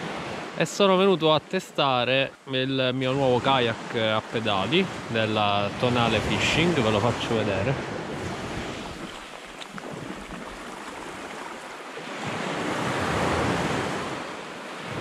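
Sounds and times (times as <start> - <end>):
surf washing on beach: 0.0 - 15.0
wind buffeting microphone: 4.7 - 11.4.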